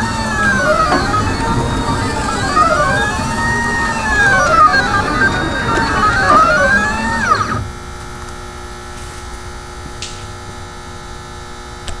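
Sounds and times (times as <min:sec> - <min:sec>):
stepper motors whining: 0:00.0 - 0:07.8.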